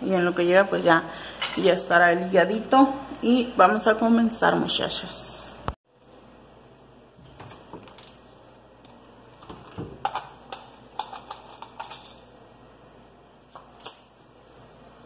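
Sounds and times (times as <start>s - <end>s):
kitchen items clicking and knocking: 9.4s - 12.3s.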